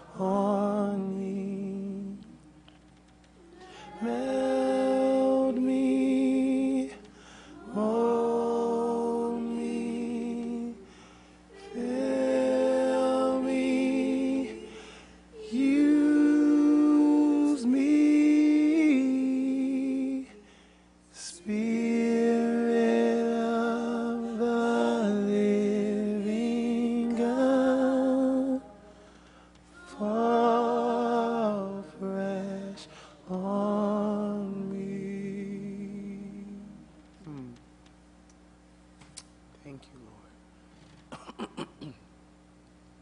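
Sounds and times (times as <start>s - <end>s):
woman singing with vibrato: 3.4s - 6.0s, 11.5s - 17.9s, 26.3s - 35.0s.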